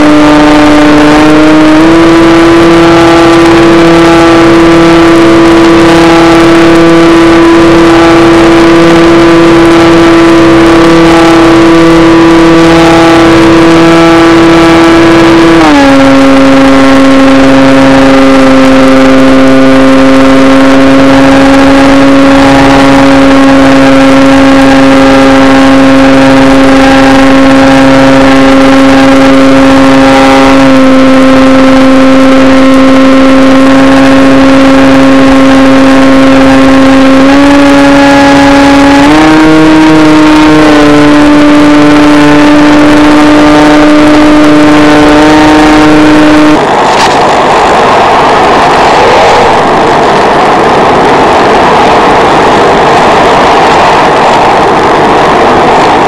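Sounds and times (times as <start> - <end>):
model plane electric motor whine: 0.0 - 48.0, 48.6 - 56.0.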